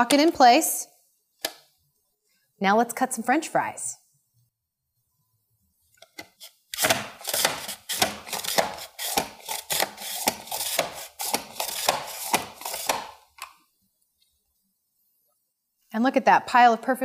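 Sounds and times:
mandoline scraping cuts: 6.2 - 13.1.

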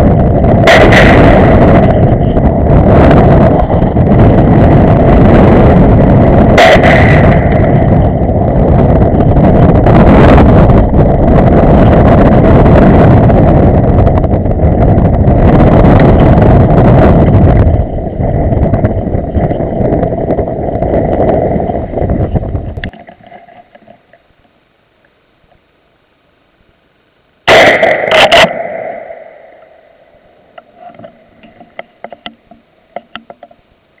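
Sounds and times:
wind buffeting microphone: 0.0 - 23.9
gunfire: 0.5 - 4.6, 6.5 - 8.3, 27.5 - 29.5.

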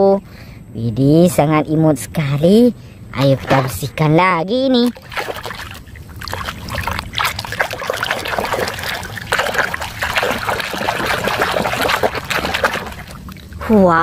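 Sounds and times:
water splashing in plastic basin: 3.2 - 4.0, 4.8 - 13.6.

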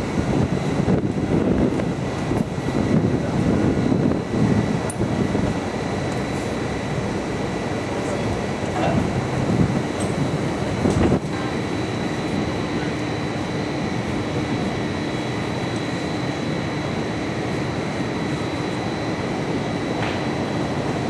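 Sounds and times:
outdoor rumble and hiss: 0.0 - 21.0.

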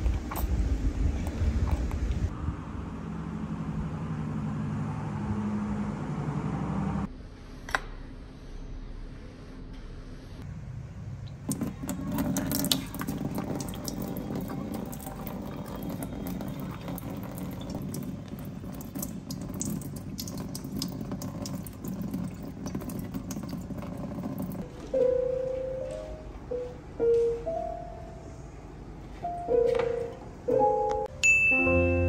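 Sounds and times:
water running into steel sink: 11.4 - 24.6.

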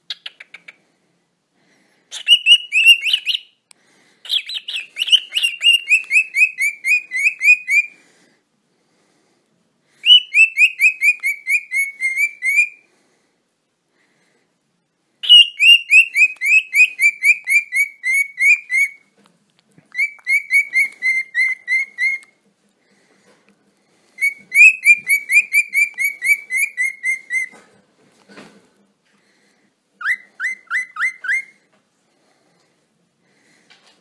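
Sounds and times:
cockatiel whistling chirps: 2.1 - 3.6, 4.3 - 7.9, 10.0 - 12.8, 15.2 - 19.1, 19.9 - 22.3, 24.2 - 27.6, 30.0 - 31.6.

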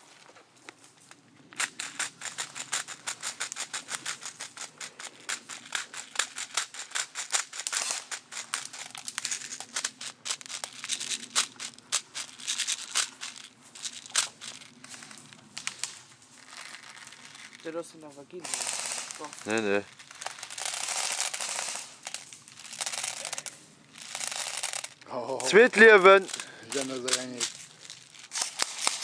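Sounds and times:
rapid sharp clicks and snaps: 1.5 - 16.0.

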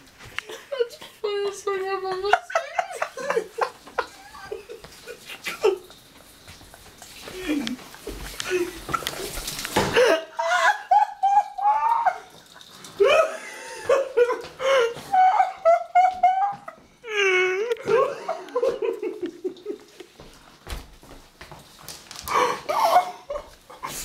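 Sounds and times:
people laughing hard: 2.2 - 6.0, 9.8 - 20.2, 22.3 - 24.0.

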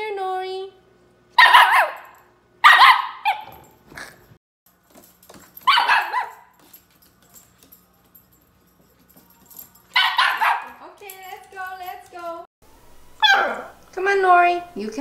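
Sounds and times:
puppy barking: 1.4 - 3.6, 5.6 - 6.6, 9.9 - 10.8, 13.2 - 13.8
wavering puppy bark: 1.4 - 3.6, 5.6 - 6.5, 9.9 - 10.8, 13.2 - 13.8.

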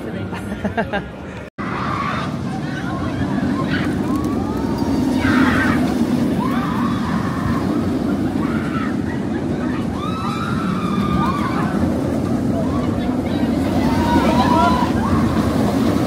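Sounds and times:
roller coaster rumbling on track: 0.0 - 16.0
riders screaming: 1.6 - 16.0.

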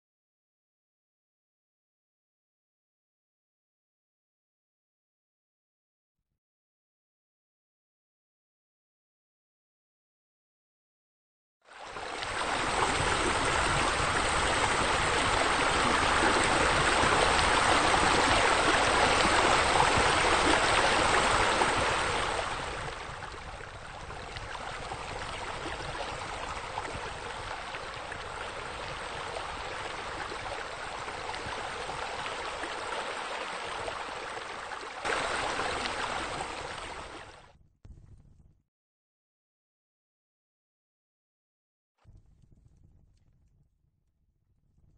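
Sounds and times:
water rushing and splashing: 11.7 - 37.4.

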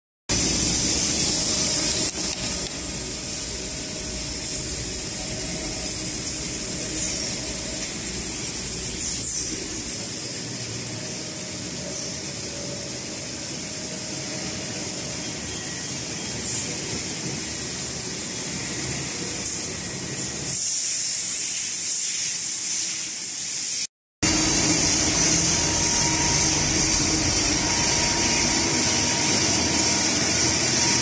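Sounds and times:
lathe machine running: 0.3 - 16.4, 24.2 - 31.0
hiss: 0.3 - 31.0.

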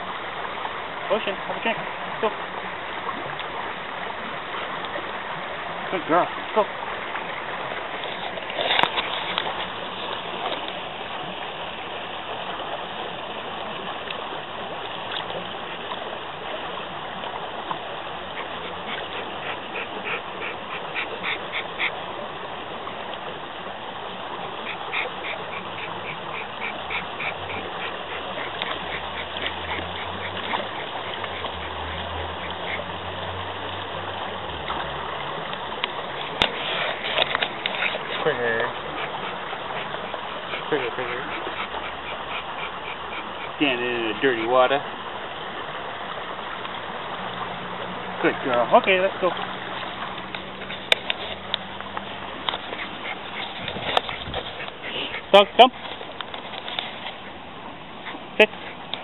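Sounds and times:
creek flowing over rocks: 0.0 - 59.0
dog lapping water: 4.2 - 11.2, 14.8 - 23.2, 24.1 - 59.0.

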